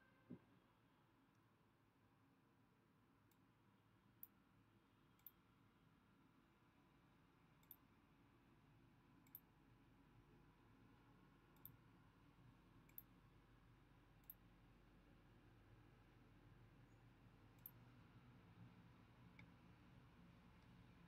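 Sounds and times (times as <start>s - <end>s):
faint low background noise: 0.0s - 21.0s
computer mouse clicks: 5.2s - 5.4s, 7.6s - 7.9s, 9.2s - 9.5s, 11.5s - 11.8s, 12.8s - 13.1s, 14.2s - 14.4s, 17.6s - 17.8s.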